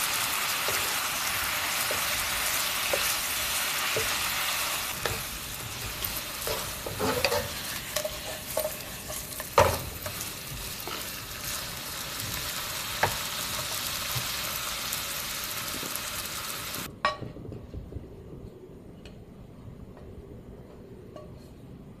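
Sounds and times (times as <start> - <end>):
meat and potatoes sizzling in pan: 0.0 - 16.9.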